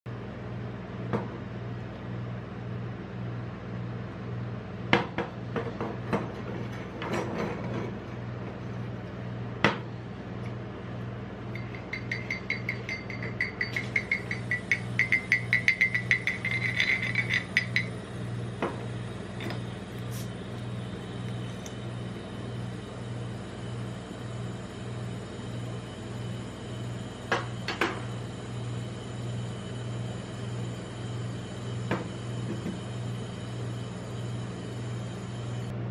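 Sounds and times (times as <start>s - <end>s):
glass bottle clinking on metal: 11.6s - 17.9s.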